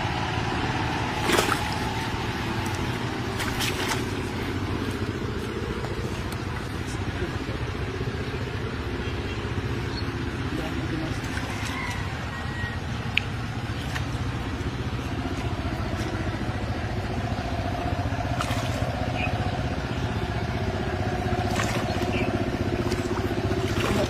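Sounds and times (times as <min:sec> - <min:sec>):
engine running steadily: 0:00.0 - 0:24.0
faint clicks or splashes: 0:02.6 - 0:04.1, 0:18.4 - 0:18.9, 0:21.5 - 0:24.0.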